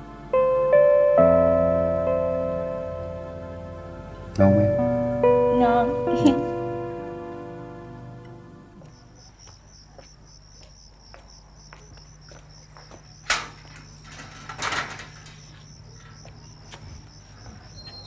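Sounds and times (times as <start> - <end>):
crickets chirping: 8.3 - 18.0
metal gate latch click: 13.2 - 15.5
metal gate rattle: 13.2 - 16.2.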